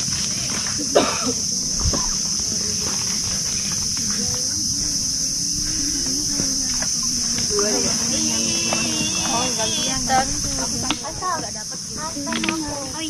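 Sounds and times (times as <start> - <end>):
low rumble: 0.0 - 9.3
high-pitched insect chorus: 0.0 - 13.0.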